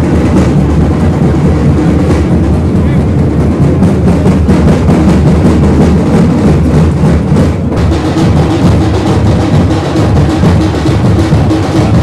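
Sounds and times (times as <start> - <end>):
loud drumming with percussion: 0.0 - 12.0.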